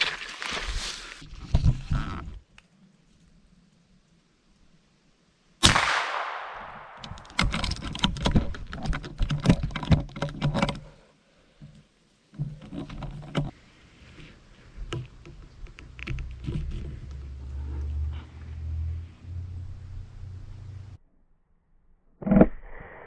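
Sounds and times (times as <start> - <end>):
footsteps crunching dry leaves: 0.0 - 1.3
rifle shot with echo: 5.6 - 7.3.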